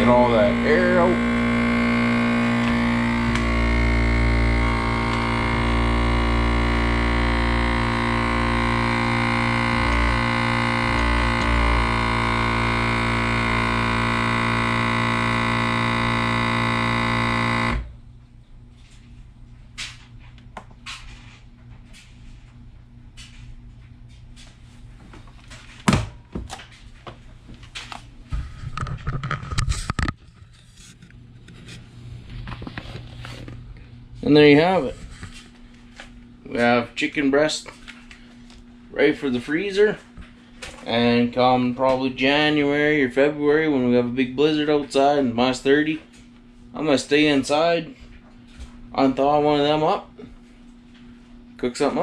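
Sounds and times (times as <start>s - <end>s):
vacuum sealer pump droning: 0.0s - 18.1s.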